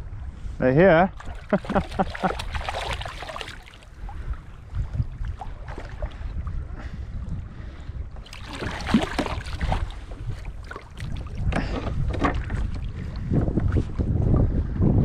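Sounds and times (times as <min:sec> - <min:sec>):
wind rumble on microphone: 0:00.0 - 0:15.0
fish splashing in water: 0:01.2 - 0:04.0, 0:08.2 - 0:11.5.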